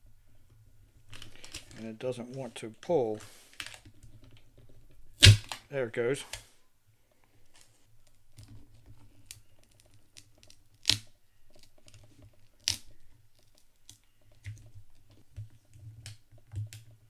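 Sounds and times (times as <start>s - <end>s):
pull tab crinkling: 1.1s - 6.5s
adhesive snapping loose: 9.3s - 11.7s.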